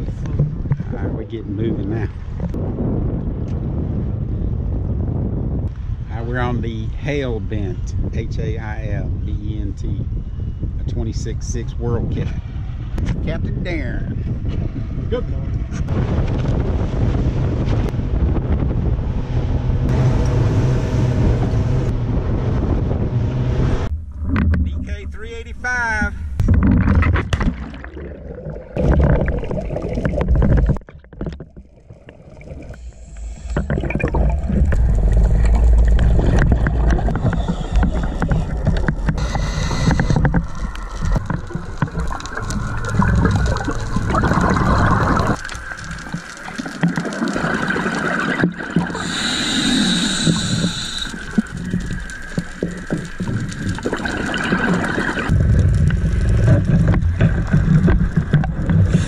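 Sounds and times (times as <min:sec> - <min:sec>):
underwater bubbles rushing: 0:26.2 - 0:59.0
regulator breathing: 0:36.8 - 0:41.4, 0:48.9 - 0:52.8.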